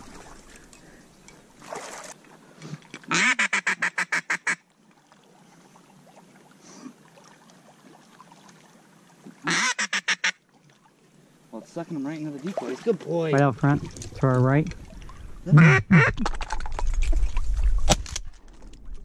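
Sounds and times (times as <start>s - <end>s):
duck call quacks: 3.1s - 4.6s, 9.4s - 10.4s, 15.5s - 16.2s.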